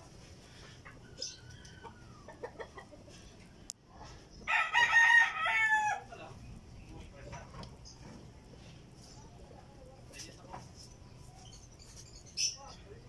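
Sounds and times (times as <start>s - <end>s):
rooster crowing: 4.4s - 6.2s.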